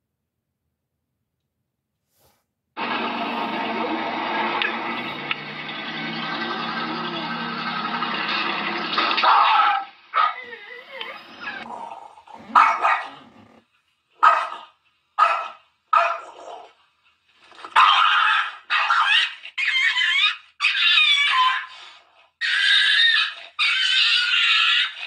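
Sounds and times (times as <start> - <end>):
dog barking: 9.2 - 10.5, 11.5 - 13.6, 14.2 - 16.7, 17.7 - 20.3.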